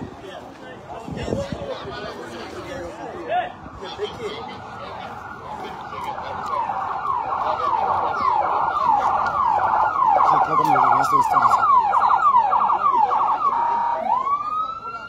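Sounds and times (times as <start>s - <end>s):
second siren: 2.4s - 15.0s
electronic siren yelping: 3.6s - 15.0s.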